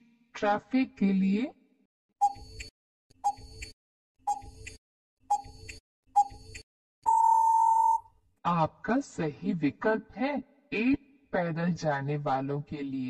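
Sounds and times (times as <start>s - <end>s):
clock tick-tock: 2.2s - 2.7s, 3.3s - 6.6s
steady beep: 7.1s - 8.0s.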